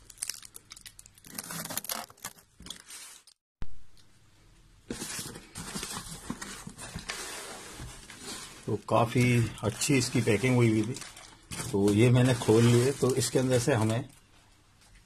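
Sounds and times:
blade slitting packing tape: 1.2s - 3.3s
cardboard rustling and scraping: 4.9s - 14.1s.

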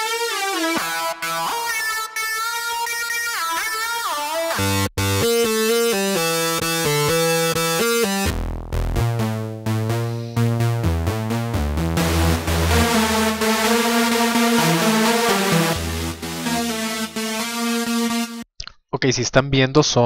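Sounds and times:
deep bass-heavy synth: 5.0s - 18.4s
bright synth short notes: 12.0s - 18.4s.

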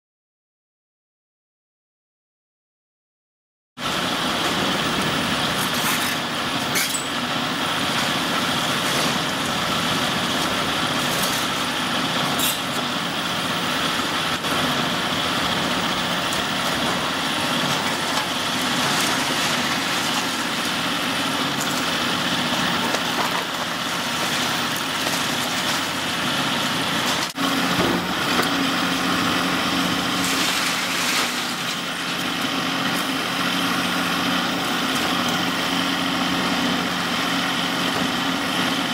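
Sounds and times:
excavator diesel engine running: 3.8s - 38.9s
demolition knocks and cracks: 30.1s - 31.9s.

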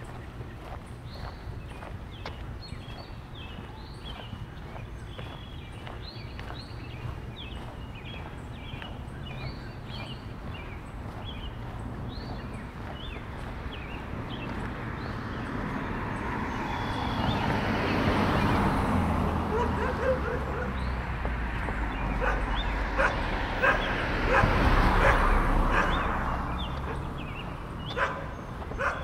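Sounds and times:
dog barking: 19.5s - 20.9s, 22.1s - 26.2s, 27.9s - 29.0s.

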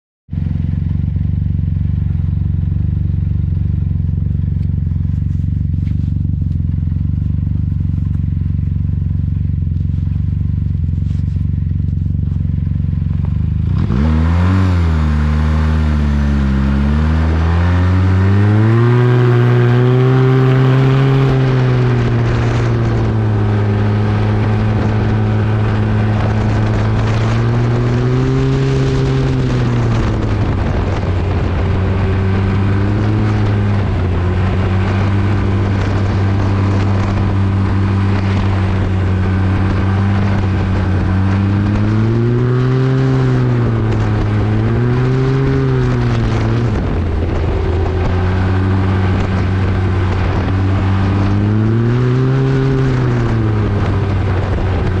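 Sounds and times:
snowmobile engine revving: 13.5s - 55.0s.

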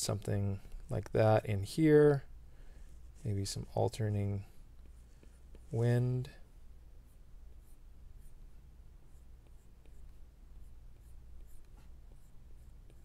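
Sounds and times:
stylus scratching on glass screen: 9.1s - 13.0s.

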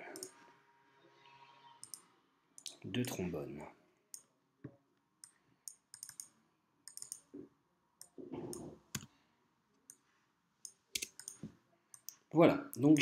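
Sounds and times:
computer mouse clicks: 0.1s - 0.4s, 1.8s - 3.2s, 5.2s - 7.3s, 10.6s - 12.2s
keyboard keys clicking: 11.0s - 11.4s.

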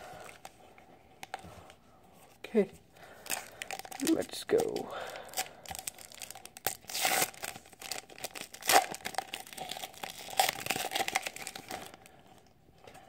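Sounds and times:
wrapper crinkling and tearing: 3.2s - 12.1s.

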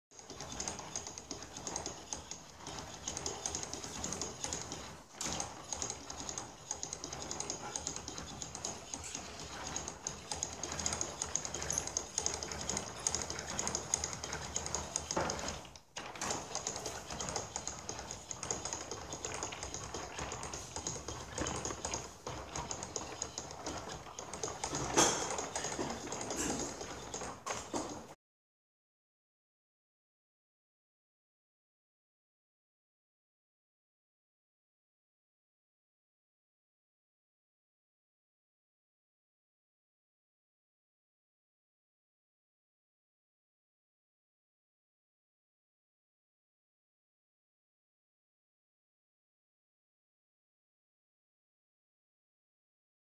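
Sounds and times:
wooden gears clattering: 0.2s - 28.2s.

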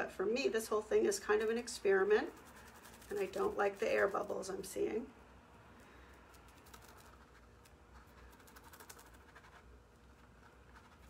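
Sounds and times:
fingertips rubbing on lampshade: 1.9s - 4.4s, 6.4s - 11.0s.

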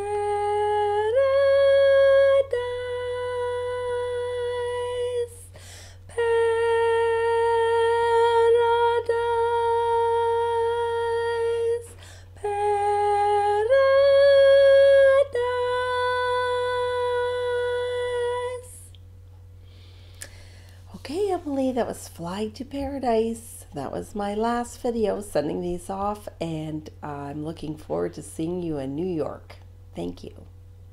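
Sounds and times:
woman singing long notes: 0.0s - 19.0s.

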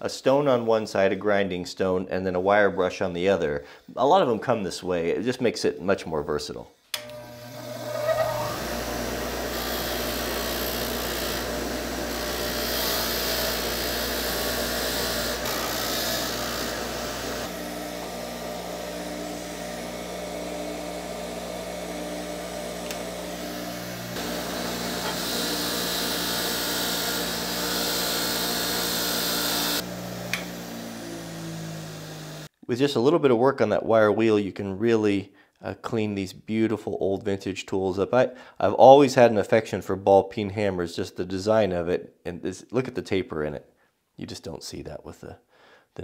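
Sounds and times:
bench grinder motor hum: 7.0s - 32.5s
wire wheel scratching metal: 7.6s - 8.6s.

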